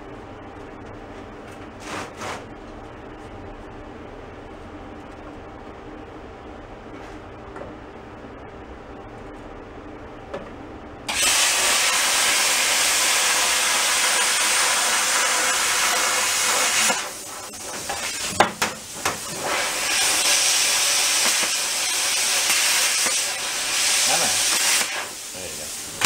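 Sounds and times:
plasma cutter hissing: 11.1 - 26.0.

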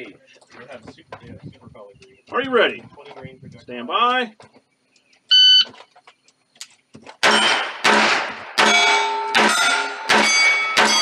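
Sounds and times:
pistol shots: 7.2 - 11.0
steel target clanging: 7.2 - 11.0.

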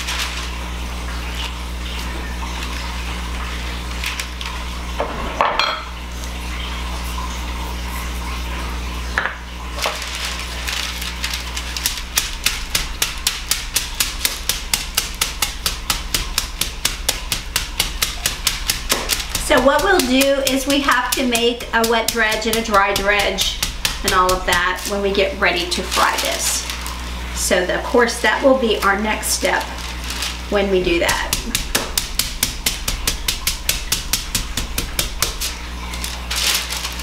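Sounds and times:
steady low hum: 0.0 - 37.0
mallet pounding meat on board: 11.8 - 24.9, 30.9 - 35.6.

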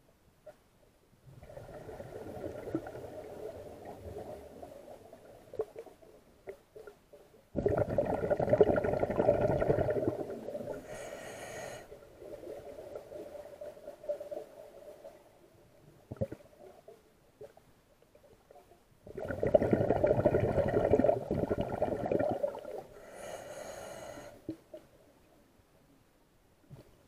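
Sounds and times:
rush of exhaled bubbles: 1.3 - 5.7, 7.6 - 11.1, 19.1 - 23.2
diver breathing through regulator: 10.7 - 12.0, 23.0 - 24.5.

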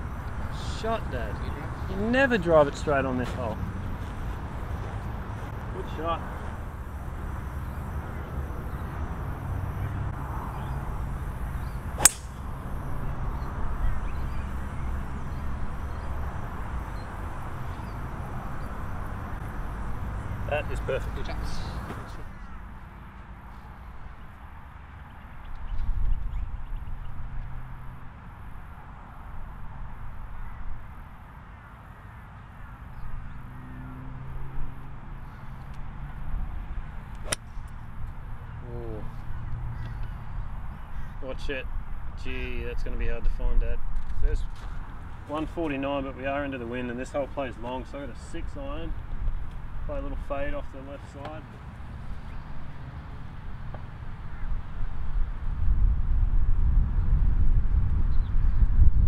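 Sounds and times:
golf club striking ball: 12.0 - 12.7, 37.2 - 37.6
wind rumbling on microphone: 25.4 - 31.0, 51.5 - 59.0
faint bird calls: 38.5 - 41.3.

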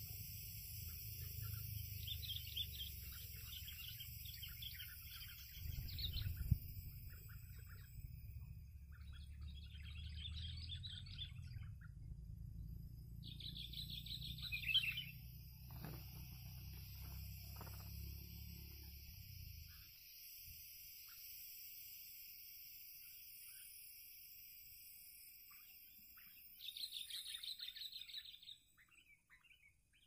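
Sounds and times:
low steady rumble: 0.0 - 19.9.

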